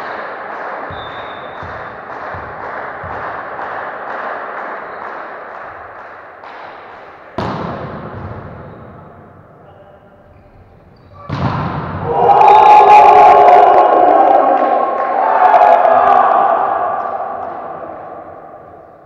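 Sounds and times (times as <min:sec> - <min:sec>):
volleyball hit echoing: 0:00.0 - 0:09.4, 0:11.2 - 0:12.2
players shouting and cheering: 0:11.1 - 0:19.0.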